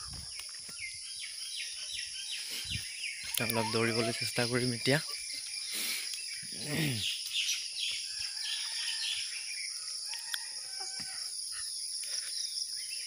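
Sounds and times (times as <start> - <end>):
birds calling: 0.0 - 13.0
insects chirring: 0.0 - 13.0.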